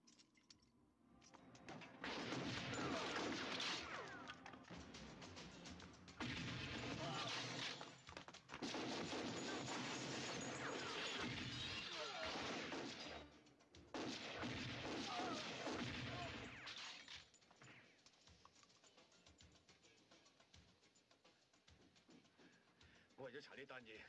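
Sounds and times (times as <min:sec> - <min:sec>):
rapid handgun fire: 0:02.0 - 0:04.2, 0:08.5 - 0:13.3, 0:13.9 - 0:16.8.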